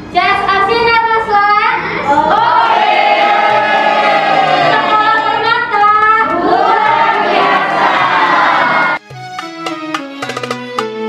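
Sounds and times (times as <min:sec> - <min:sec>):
voices singing held notes: 0:06.2 - 0:09.0.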